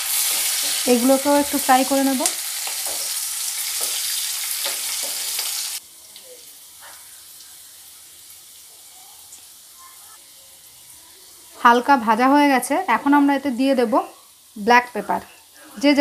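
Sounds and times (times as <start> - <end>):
vegetables sizzling in hot oil: 0.0 - 16.0.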